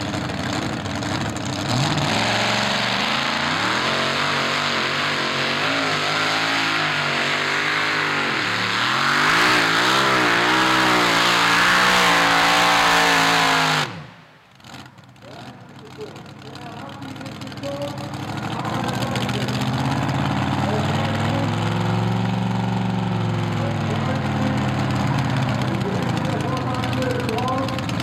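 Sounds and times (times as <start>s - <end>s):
tractor engine at full throttle: 0.0s - 28.0s.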